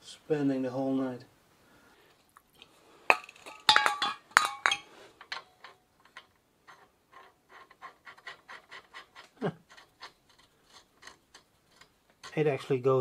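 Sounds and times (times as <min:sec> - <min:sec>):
metal clink: 0:03.1 - 0:06.2
threads scraping ticks: 0:05.2 - 0:13.0.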